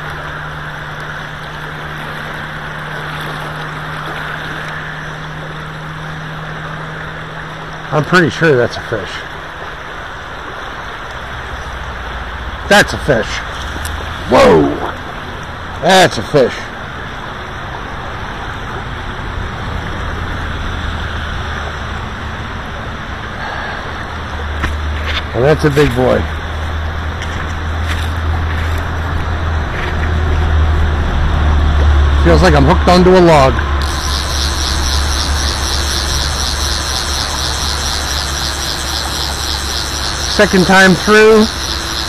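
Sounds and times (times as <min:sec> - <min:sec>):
steady low hum: 0:00.0 - 0:42.0
river current rushing: 0:32.3 - 0:42.0.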